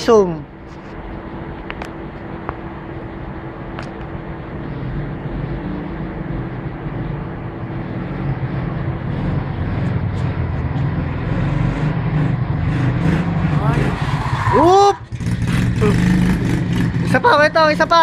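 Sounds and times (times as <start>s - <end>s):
quad bike engine running: 14.6s - 18.0s.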